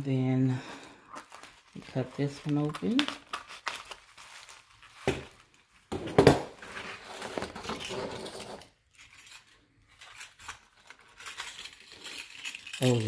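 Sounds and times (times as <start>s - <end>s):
paper and fabric bag rustling: 0.7s - 5.9s, 6.6s - 8.6s.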